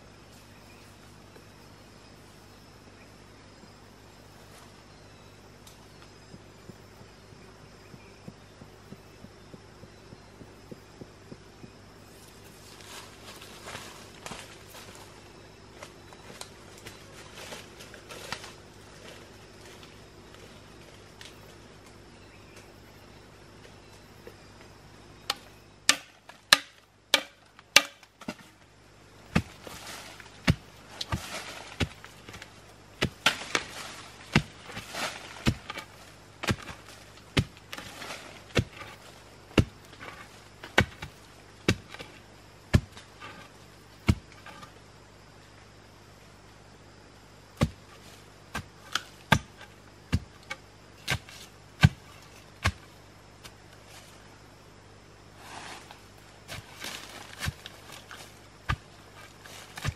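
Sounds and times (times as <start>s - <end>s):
dirt and dry leaves scraping: 12.0s - 21.6s, 27.6s - 44.8s, 47.6s - 54.4s, 55.3s - 59.9s
bamboo pole thudding into ground: 25.3s - 28.5s, 29.3s - 43.4s.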